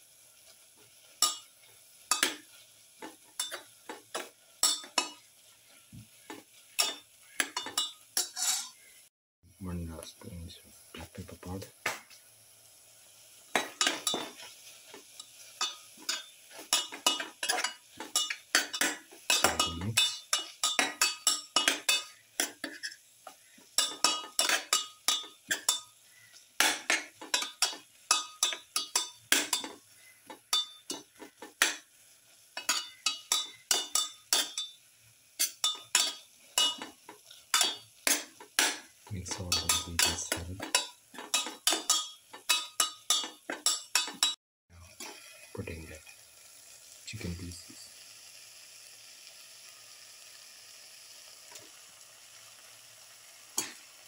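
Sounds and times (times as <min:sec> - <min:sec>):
metal spatula scraping a steel pan: 0:06.2 - 0:08.9, 0:13.6 - 0:23.0, 0:23.8 - 0:25.9.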